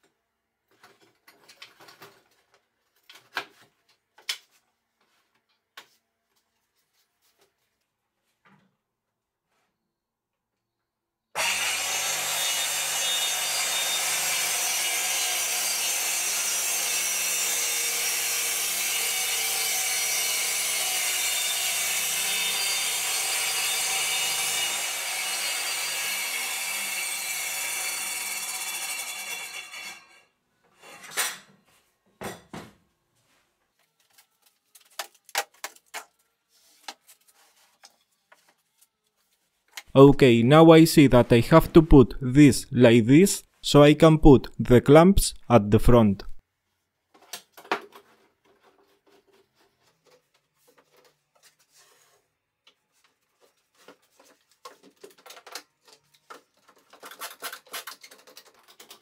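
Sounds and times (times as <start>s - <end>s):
circular saw cutting wood: 11.4s - 30.2s
wooden strips clicking and tapping: 53.8s - 59.0s.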